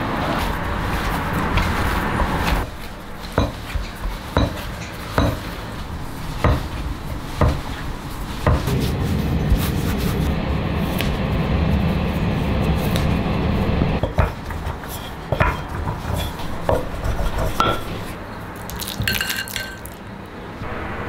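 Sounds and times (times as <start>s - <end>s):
low rumble: 8.7s - 14.0s
metal spoon clinking on glass bowl: 18.8s - 20.0s.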